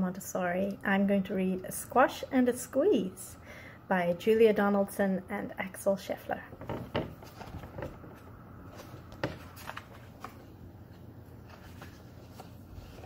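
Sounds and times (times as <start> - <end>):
low room hum: 0.0 - 13.0
book pages rustling: 7.1 - 13.0.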